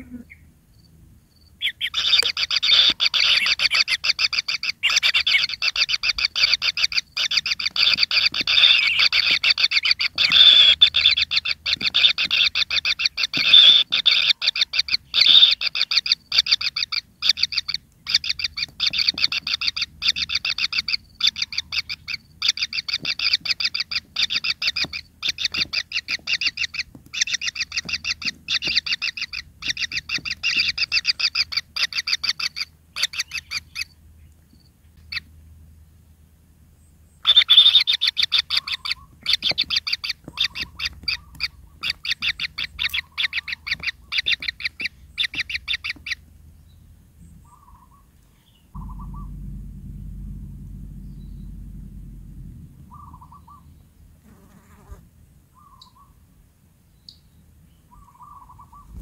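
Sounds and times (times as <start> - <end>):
nestlings shrill begging calls: 1.6 - 33.9, 37.2 - 46.2.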